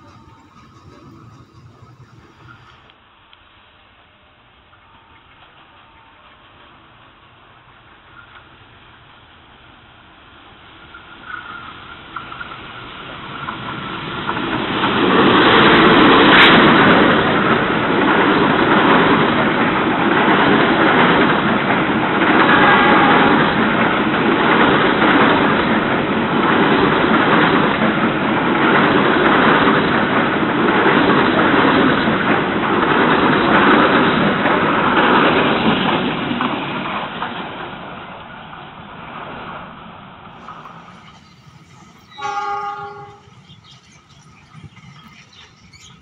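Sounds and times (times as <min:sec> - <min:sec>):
wagon wheels clattering on rails: 0:00.0 - 0:02.9, 0:40.4 - 0:46.0
diesel locomotive passing: 0:00.0 - 0:46.0.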